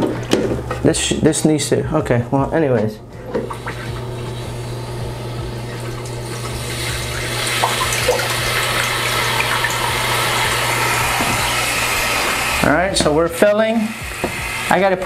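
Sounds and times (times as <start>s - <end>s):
toilet tank filling with water: 3.2s - 15.0s.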